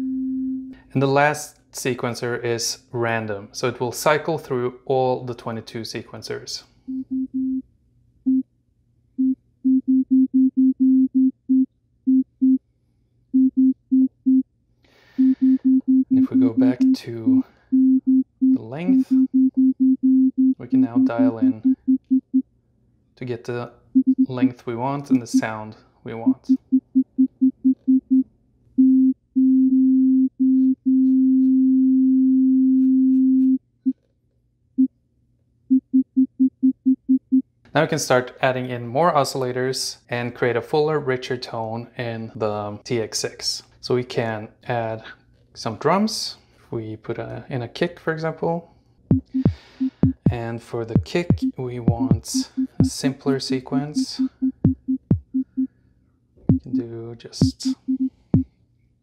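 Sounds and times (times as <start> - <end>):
synth sine-wave blips: 51.4 - 52.9, 53.7 - 55.7.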